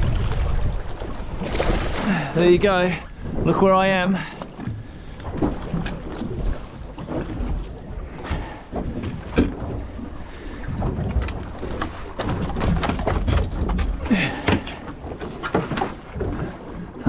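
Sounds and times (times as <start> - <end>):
knocks and clacks of fishing gear: 4.2 - 17.0.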